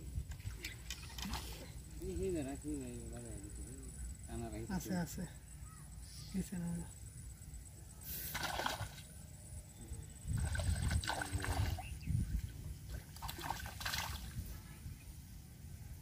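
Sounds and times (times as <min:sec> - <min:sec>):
fish splashing in water: 0:08.2 - 0:09.1, 0:10.4 - 0:12.0, 0:12.9 - 0:14.4.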